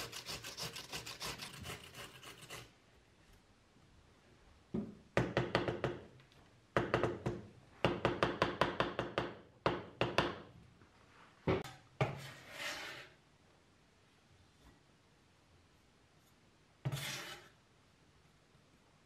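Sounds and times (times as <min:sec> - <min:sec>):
scrape on cutting board: 0:12.0 - 0:13.2, 0:16.8 - 0:17.6.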